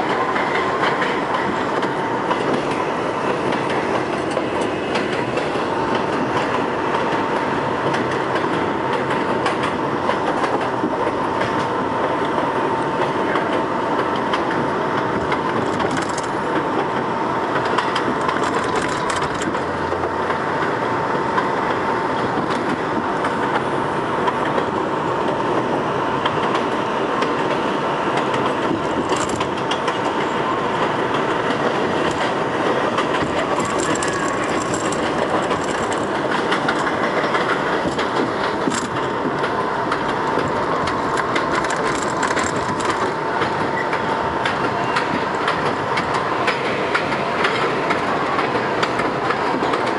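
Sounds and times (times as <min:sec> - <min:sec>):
subway car rumble and rail noise: 0:00.0 - 0:49.9
scattered clicks: 0:15.4 - 0:16.4, 0:17.6 - 0:19.6, 0:28.2 - 0:30.2, 0:33.0 - 0:48.0.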